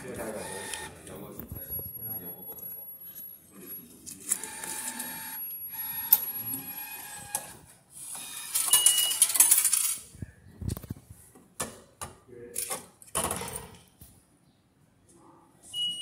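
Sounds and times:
bill acceptor whirring: 0:00.0 - 0:01.0, 0:04.3 - 0:07.5
short beep: 0:15.7 - 0:16.0.

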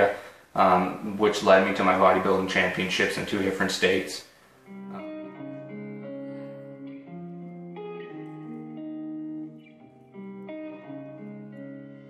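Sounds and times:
slow guitar with held notes: 0:04.4 - 0:12.0.

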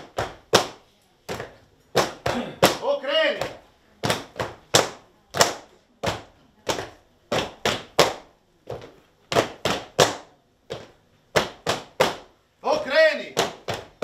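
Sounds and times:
boots stamping on tiled floor: 0:00.0 - 0:14.0.

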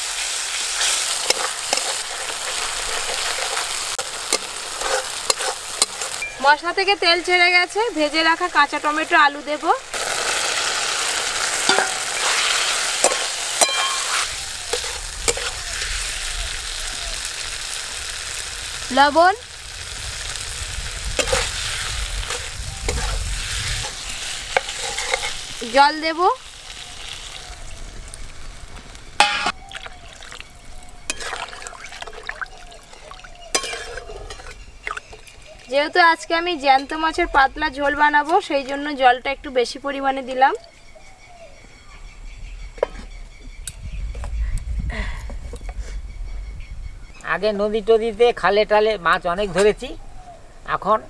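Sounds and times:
potatoes sizzling in oil: 0:00.0 - 0:40.9
spatula scraping a pan: 0:00.6 - 0:06.2, 0:11.6 - 0:16.2, 0:21.2 - 0:25.6, 0:32.9 - 0:35.3
water pouring into a metal pan: 0:29.6 - 0:33.4.

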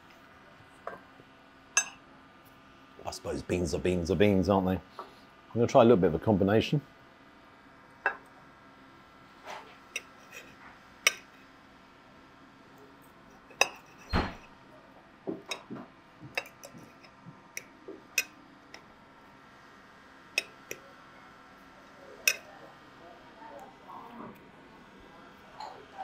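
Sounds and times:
cutlery clinking on a ceramic plate: 0:10.0 - 0:11.4, 0:13.5 - 0:14.4, 0:16.3 - 0:18.4, 0:20.4 - 0:20.8, 0:22.2 - 0:22.5.

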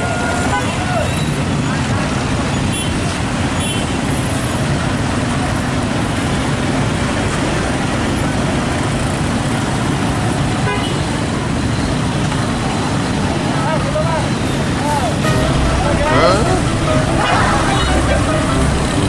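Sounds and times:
horn toot: 0:14.4 - 0:19.0.

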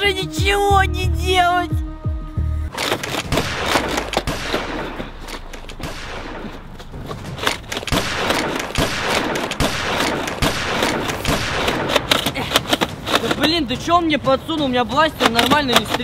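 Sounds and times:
rapid automatic gunfire: 0:07.6 - 0:12.2.

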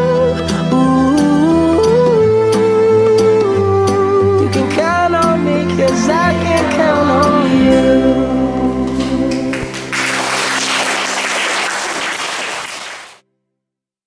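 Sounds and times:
sung pop song chord: 0:04.4 - 0:09.8
audience applause: 0:08.9 - 0:13.2.

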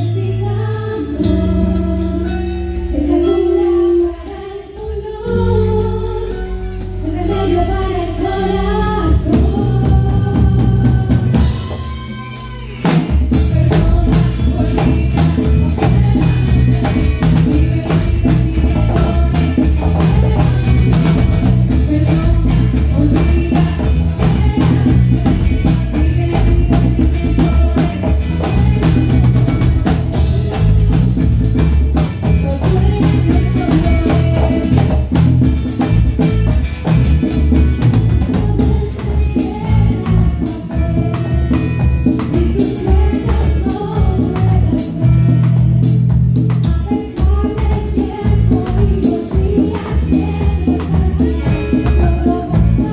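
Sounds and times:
drum kit and congas beat: 0:00.0 - 0:52.9
electric bass: 0:00.0 - 0:52.9
guitar melody: 0:00.0 - 0:52.9.

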